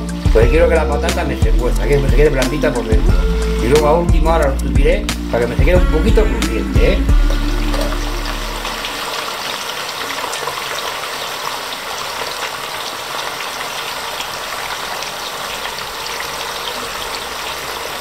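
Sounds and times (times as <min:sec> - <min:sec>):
potatoes deep-frying in oil: 0:07.3 - 0:18.0.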